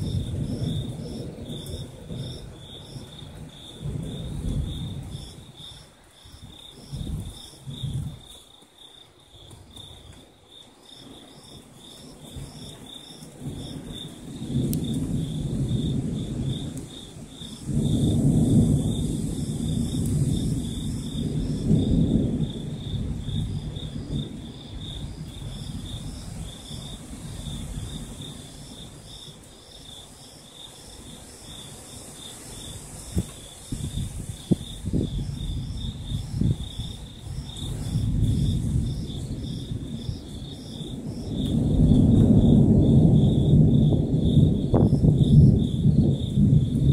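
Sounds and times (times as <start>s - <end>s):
thunder rumbling: 0.0s - 8.3s, 11.1s - 46.9s
night insects chirping: 0.0s - 46.9s
sharp thunder cracks: 13.4s - 26.8s, 37.6s - 46.9s.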